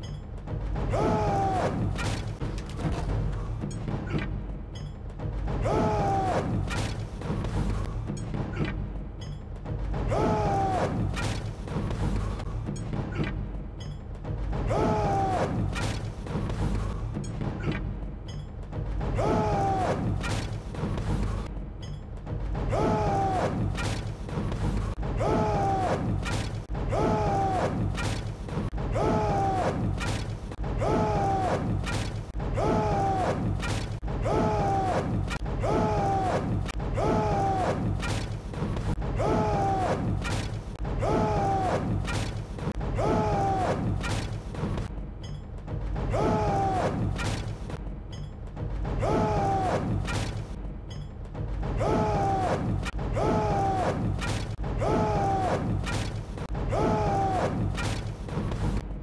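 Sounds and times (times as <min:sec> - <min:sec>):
men shouting a chant in unison: 0:00.8 - 0:02.0, 0:05.6 - 0:06.7, 0:10.0 - 0:11.2, 0:14.6 - 0:15.8, 0:19.1 - 0:20.2, 0:22.7 - 0:23.8, 0:25.1 - 0:26.2, 0:26.8 - 0:28.0, 0:28.8 - 0:30.0, 0:30.6 - 0:38.0, 0:39.0 - 0:40.2, 0:40.8 - 0:42.1, 0:42.8 - 0:44.0, 0:46.1 - 0:47.2, 0:49.0 - 0:50.1, 0:51.7 - 0:55.9, 0:56.5 - 0:57.8.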